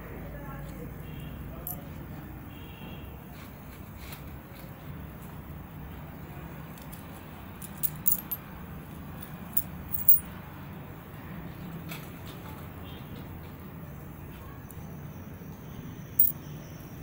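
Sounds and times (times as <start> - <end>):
coins clinking on floor: 7.6 - 8.4, 9.6 - 10.2.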